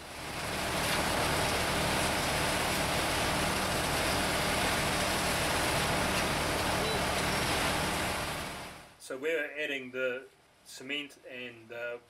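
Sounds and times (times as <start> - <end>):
tractor engine running: 0.0 - 8.9.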